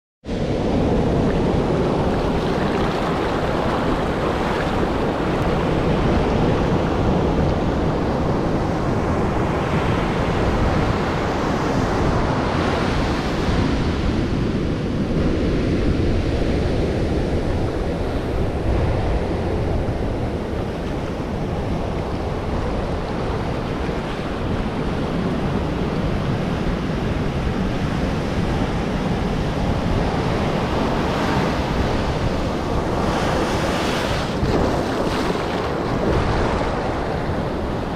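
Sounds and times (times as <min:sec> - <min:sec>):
surf breaking on beach: 0:00.6 - 0:08.4, 0:28.5 - 0:37.9.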